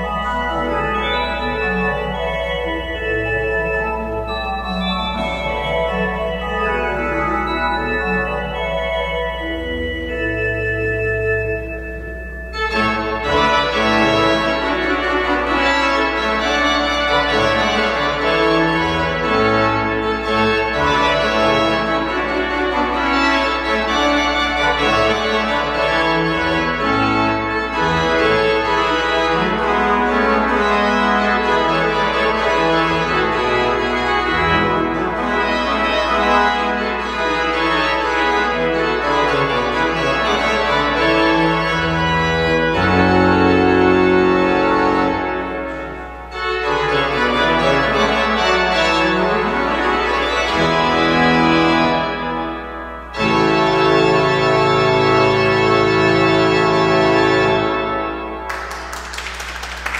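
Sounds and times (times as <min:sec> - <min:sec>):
church organ chords: 0:00.0 - 0:59.9.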